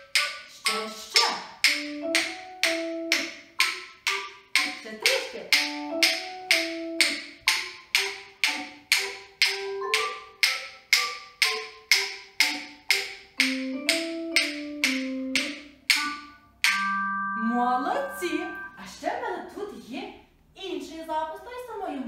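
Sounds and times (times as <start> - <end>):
wooden claves knocking: 0.1 - 17.0
high ringing instrumental music: 1.6 - 18.9.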